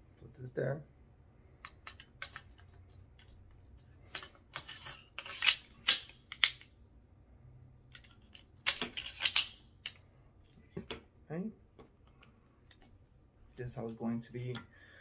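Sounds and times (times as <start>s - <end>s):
metal clicks and scraping: 1.6s - 6.7s, 7.9s - 10.0s.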